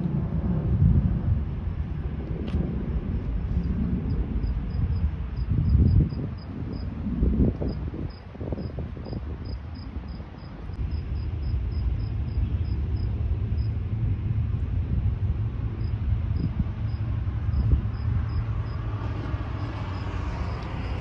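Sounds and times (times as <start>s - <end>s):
low outdoor rumble: 0.0s - 21.0s
cricket chirping: 7.7s - 13.8s, 15.8s - 18.9s.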